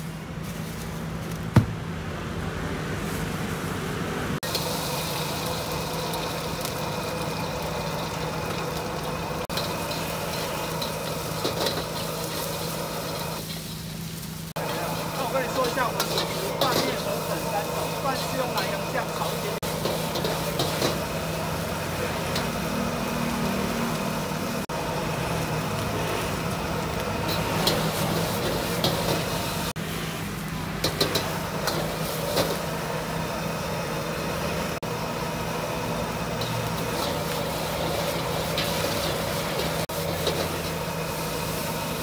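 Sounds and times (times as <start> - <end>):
gas burner rushing: 3.0 - 42.0
metal ladle clanking on wok: 30.8 - 32.6.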